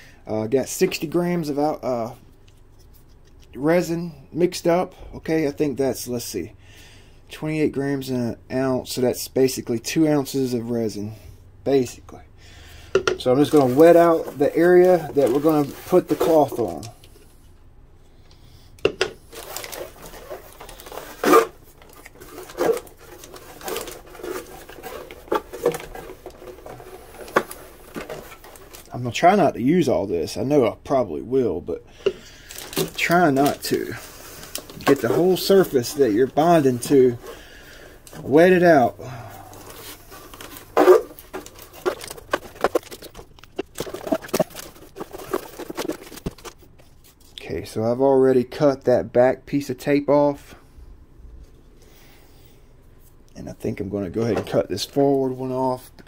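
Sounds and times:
brush swishing and scraping: 13.2s - 16.9s.

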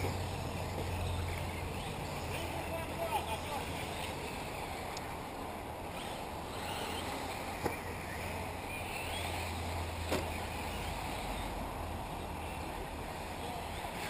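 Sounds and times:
model car motors whining: 0.0s - 14.0s.

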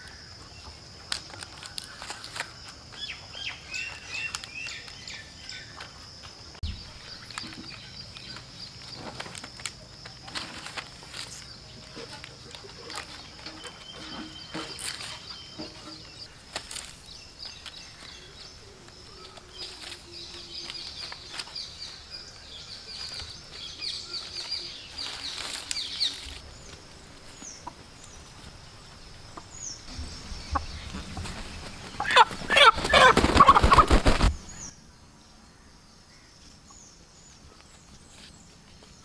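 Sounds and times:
palm fronds rustling and crackling: 0.0s - 34.7s, 37.3s - 39.0s.

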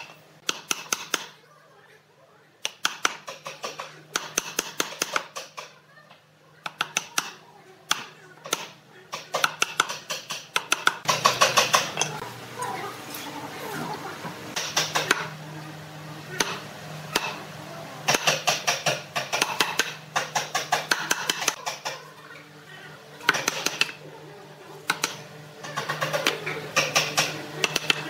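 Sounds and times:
chisel chopping wood: 18.1s - 21.8s, 24.9s - 25.2s.

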